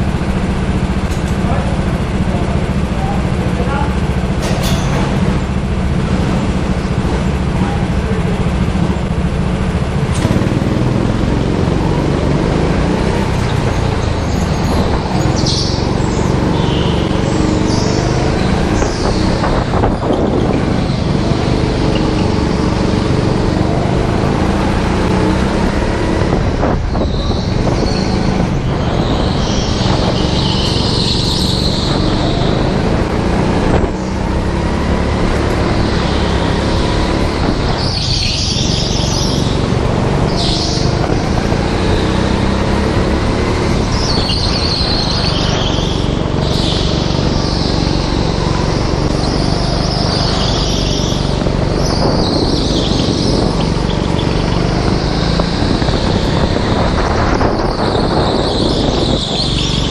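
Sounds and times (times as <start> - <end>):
go-kart engine running: 0.0 - 59.9
tyre squeals: 12.5 - 34.4, 35.0 - 59.9.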